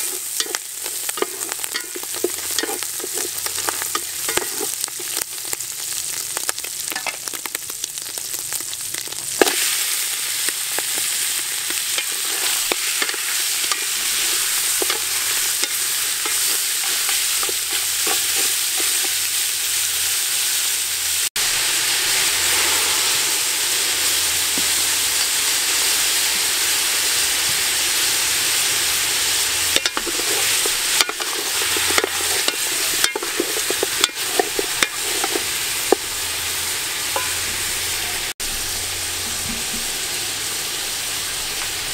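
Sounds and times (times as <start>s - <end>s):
wooden spatula scraping pot: 0.0s - 5.2s, 11.7s - 19.2s, 29.7s - 36.1s
food sizzling in oil: 0.0s - 41.9s.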